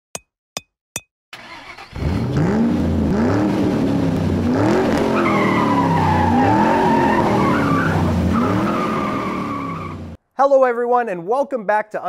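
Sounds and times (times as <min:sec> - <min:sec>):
car engine revving: 0:01.4 - 0:10.2
tyre screech: 0:05.1 - 0:10.1.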